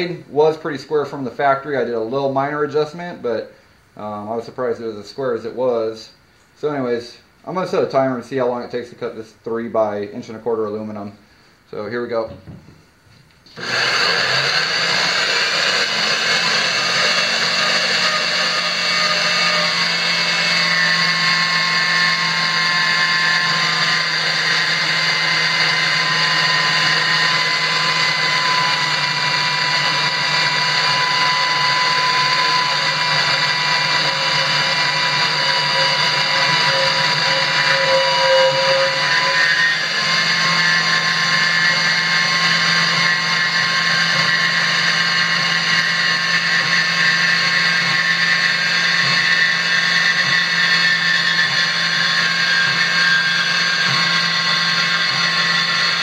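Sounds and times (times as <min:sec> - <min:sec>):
band saw cutting metal: 0:13.5 - 0:56.0.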